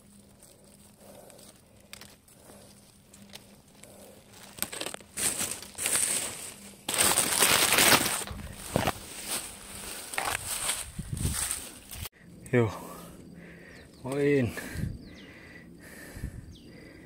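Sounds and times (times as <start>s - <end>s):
leaves and twigs rustling crunching: 0.0s - 12.2s.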